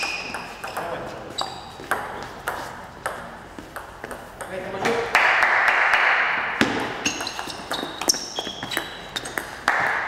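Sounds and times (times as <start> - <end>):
shoes squeaking on floor: 0.0 - 4.4, 6.6 - 9.7.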